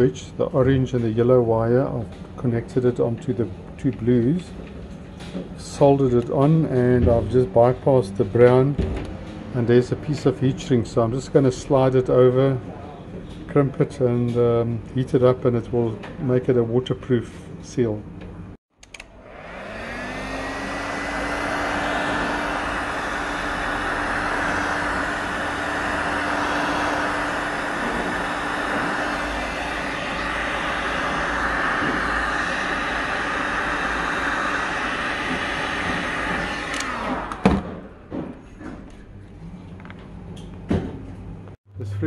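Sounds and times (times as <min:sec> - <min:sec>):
heat gun fan whirring: 0:18.8 - 0:38.2.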